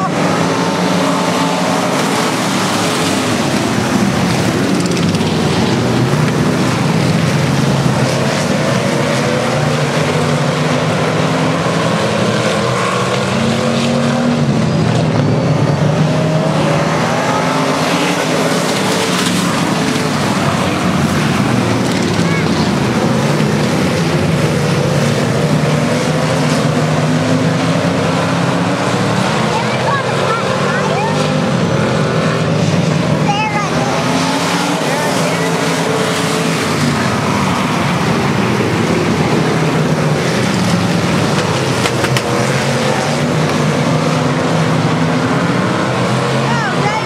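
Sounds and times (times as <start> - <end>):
race car engines: 0.0 - 47.0.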